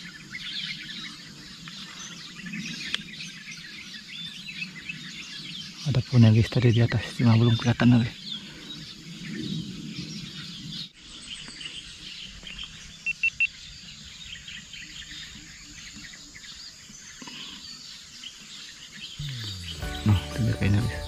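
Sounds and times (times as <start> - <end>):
small birds chirping: 0.0 - 21.0
quick high-pitched notes: 19.2 - 21.0.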